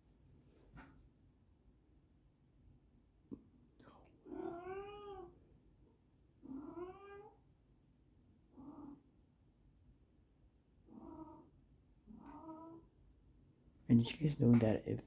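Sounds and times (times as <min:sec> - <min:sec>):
cat meowing: 0:04.3 - 0:05.3, 0:06.4 - 0:07.4, 0:12.1 - 0:12.9.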